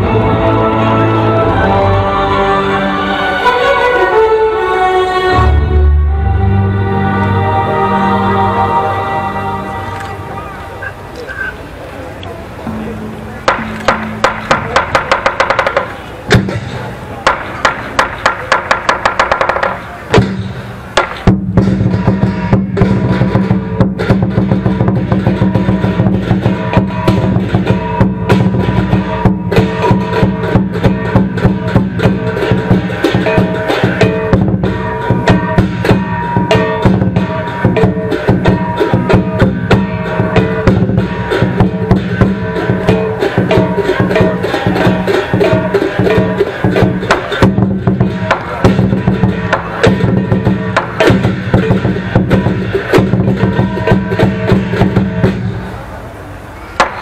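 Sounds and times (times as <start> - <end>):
gong: 12.6 - 15.1, 21.6 - 55.6
cymbals clashing: 12.6 - 57.0
drum beating fast rhythm: 12.6 - 57.0.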